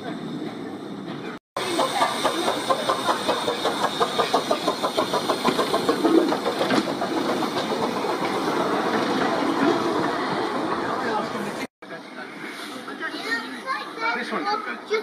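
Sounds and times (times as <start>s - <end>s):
steam hiss and rumble: 0.1s - 11.6s
steam locomotive chuffing: 1.6s - 11.7s.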